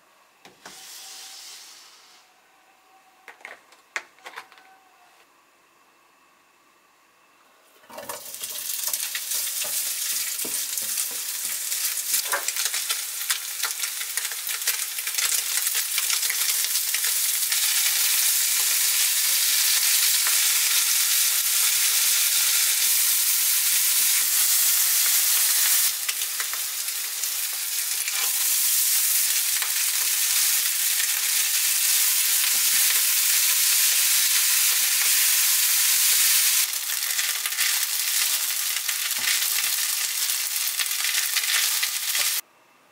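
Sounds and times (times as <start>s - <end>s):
meat sizzling in a frying pan: 8.2s - 42.4s.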